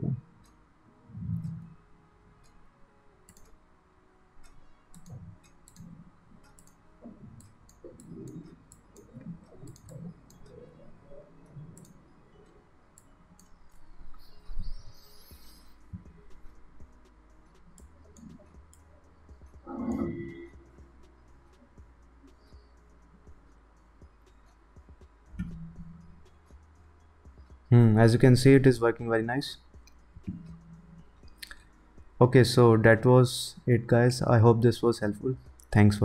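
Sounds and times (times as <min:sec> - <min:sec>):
computer mouse clicking: 0:03.3 - 0:03.6, 0:04.4 - 0:06.8, 0:07.4 - 0:10.7, 0:11.7 - 0:12.0, 0:19.5 - 0:21.2.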